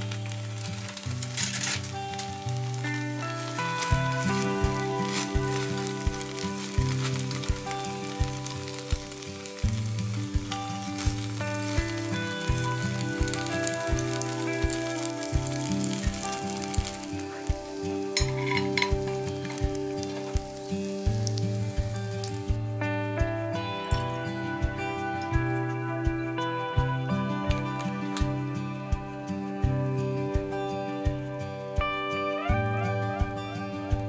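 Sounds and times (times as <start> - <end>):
dumplings sizzling on griddle: 0.0 - 22.8
background music: 0.0 - 34.0.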